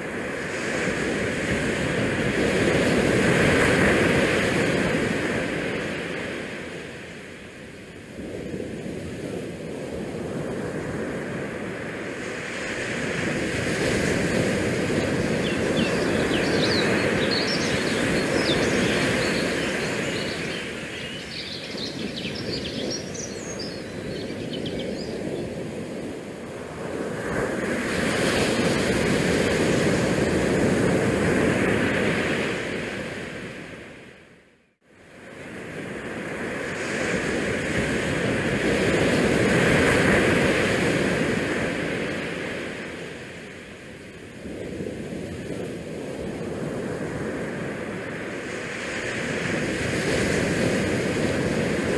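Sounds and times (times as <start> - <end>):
wind buffeting microphone: 8.1 - 33.1.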